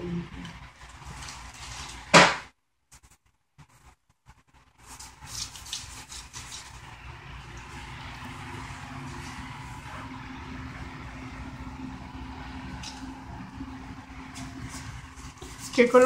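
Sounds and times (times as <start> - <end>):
paintbrush strokes on paper: 2.9 - 10.3, 14.2 - 16.0.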